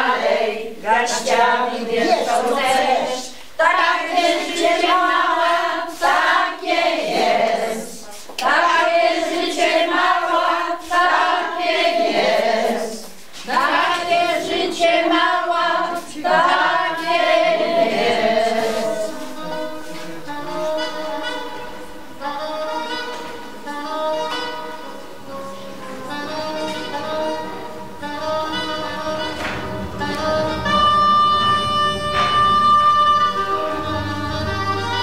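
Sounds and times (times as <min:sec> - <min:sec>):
women singing together: 0:00.0 - 0:24.4
instrumental music: 0:03.7 - 0:35.0.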